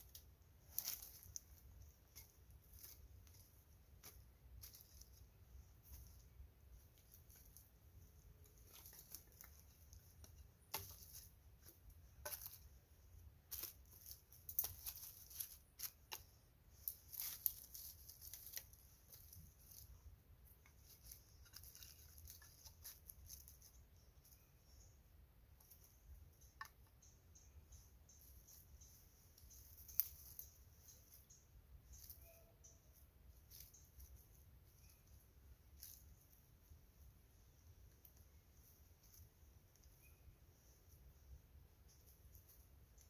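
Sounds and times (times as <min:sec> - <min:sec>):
wooden kindling clicks and rustles: 0:00.0 - 0:24.4, 0:28.2 - 0:32.3, 0:33.4 - 0:36.4.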